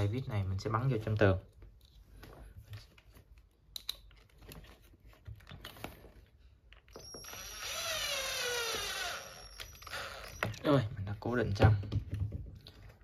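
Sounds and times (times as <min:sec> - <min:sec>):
electric screwdriver whining: 0:06.9 - 0:10.7.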